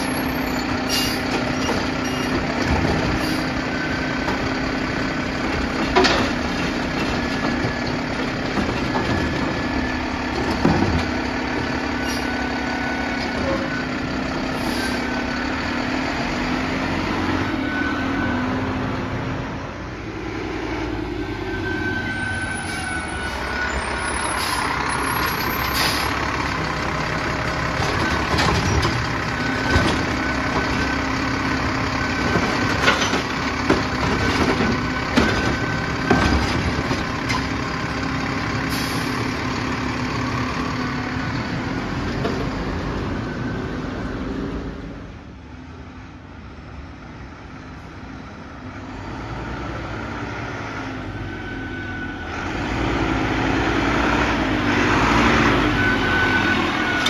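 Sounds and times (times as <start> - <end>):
garbage truck engine running: 0.0 - 51.2.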